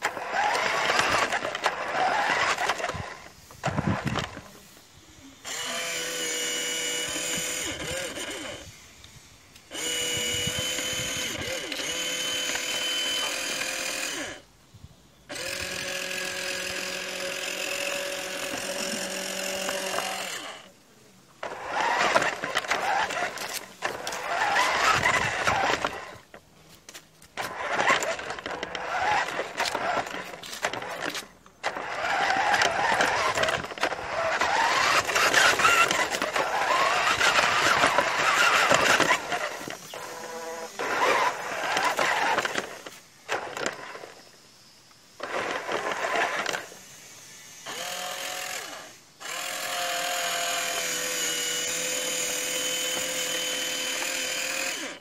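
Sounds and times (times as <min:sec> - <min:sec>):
toy truck rattling clatter: 0:00.0 - 0:04.4, 0:09.7 - 0:14.4, 0:21.4 - 0:26.4, 0:27.3 - 0:44.2, 0:45.2 - 0:46.8, 0:47.7 - 0:55.0
toy truck motor whining: 0:00.0 - 0:14.5, 0:15.3 - 0:20.8, 0:21.4 - 0:55.0.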